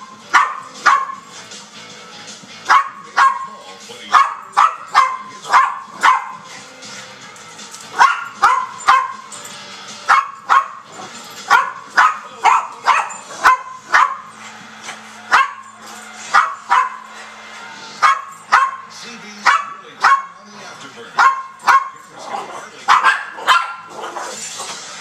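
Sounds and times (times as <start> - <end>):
puppy barking: 0.0 - 1.3, 2.7 - 6.5, 7.9 - 9.4, 10.1 - 14.4, 15.3 - 17.1, 18.0 - 20.4, 21.2 - 24.3
faint television music: 0.0 - 25.0.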